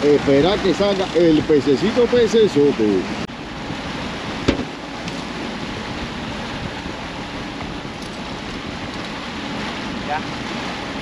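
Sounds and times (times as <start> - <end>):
water noise: 0.0 - 11.0
wind: 0.0 - 11.0
sharp knock: 4.5 - 4.7.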